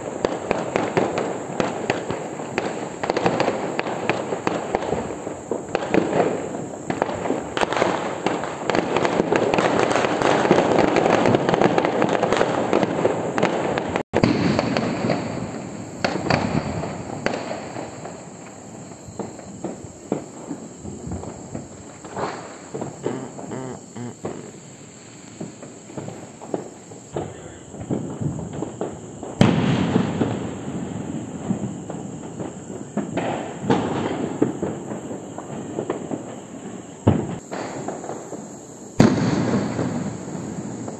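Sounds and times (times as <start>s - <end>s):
firecrackers crackling: 0.0s - 40.9s
loud firework bang: 5.7s - 24.5s, 25.5s - 34.7s, 39.0s - 40.9s.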